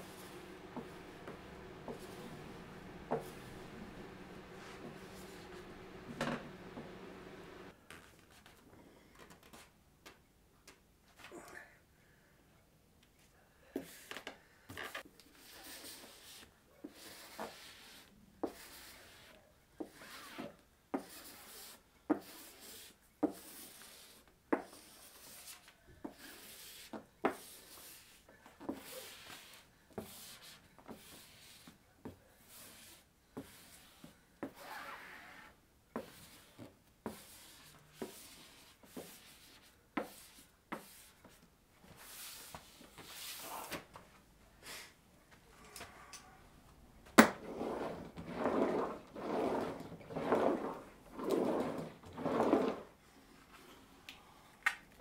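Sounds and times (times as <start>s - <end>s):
squeegee rubbing swishes: 0.0s - 7.7s.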